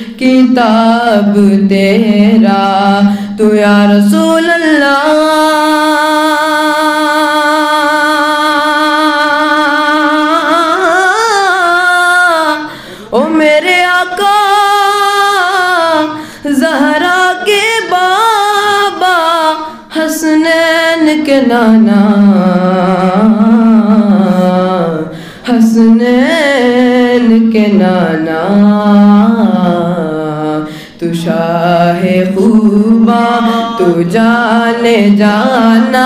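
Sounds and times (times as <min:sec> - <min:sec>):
boy singing unaccompanied: 0:00.1 - 0:36.0
quick breaths: 0:12.7 - 0:13.2, 0:25.1 - 0:25.5, 0:30.7 - 0:31.0.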